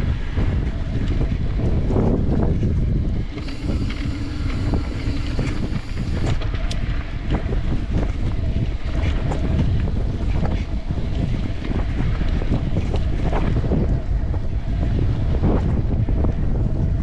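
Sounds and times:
wind on microphone: 0:00.0 - 0:17.0
bike rattling: 0:02.9 - 0:06.7.

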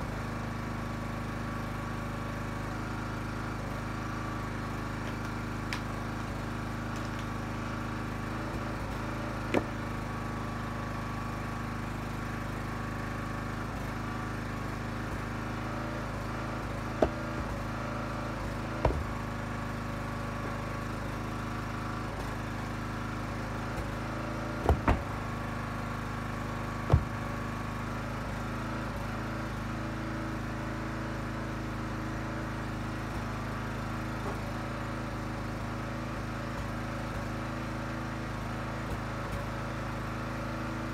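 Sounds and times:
log splitter engine running: 0:00.0 - 0:40.9
wood cracking and knocking: 0:09.5 - 0:09.8, 0:16.9 - 0:17.7, 0:18.7 - 0:19.3, 0:24.6 - 0:25.4, 0:26.8 - 0:27.3.

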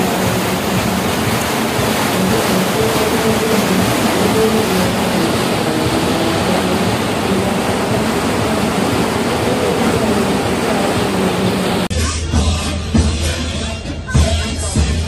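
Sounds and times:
wind on microphone: 0:00.0 - 0:11.9
water rushing past boat: 0:00.0 - 0:15.0.

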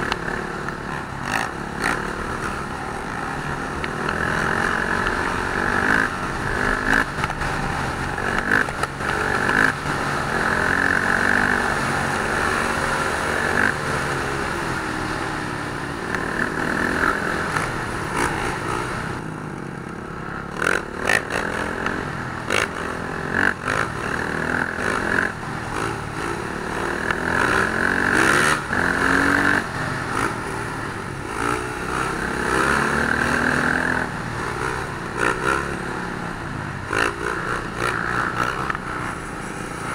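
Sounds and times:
motorcycle engines revving: 0:00.0 - 0:39.9.

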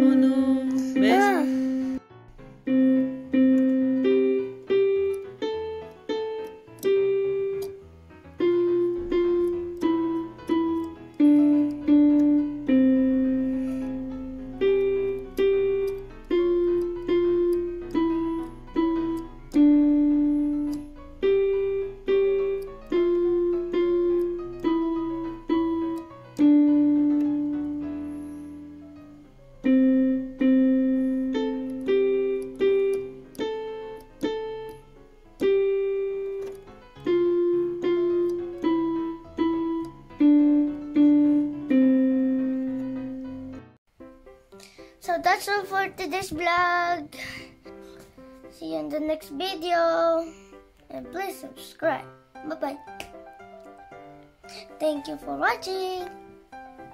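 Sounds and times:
keyboard piano melody: 0:00.0 - 0:56.9.

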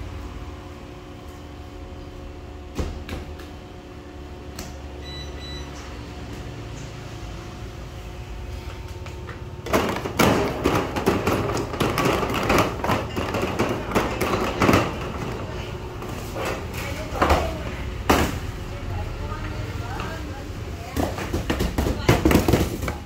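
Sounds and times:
metal bread tins clattering: 0:09.7 - 0:17.3.

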